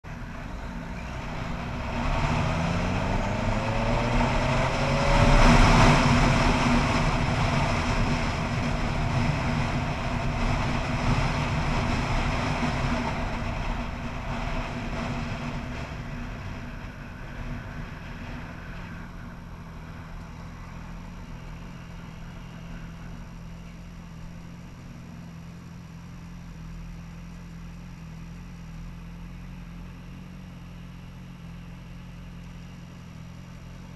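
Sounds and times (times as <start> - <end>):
motorcycle engine idling: 0.0 - 2.0, 6.2 - 33.9
motorcycle engine accelerating: 0.0 - 33.9
wind rushing over microphone: 0.1 - 22.4.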